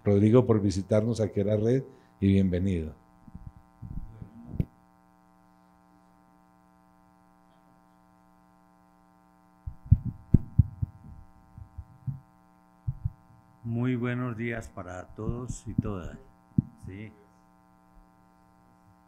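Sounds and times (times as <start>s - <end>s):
electrical mains hum: 0.0s - 19.0s
microphone handling thumps: 3.2s - 4.8s, 9.6s - 13.5s, 15.0s - 17.1s.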